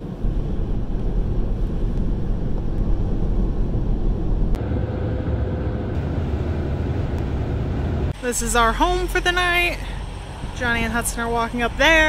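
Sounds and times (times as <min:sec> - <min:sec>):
car tyres and engine rumble: 0:00.0 - 0:12.0.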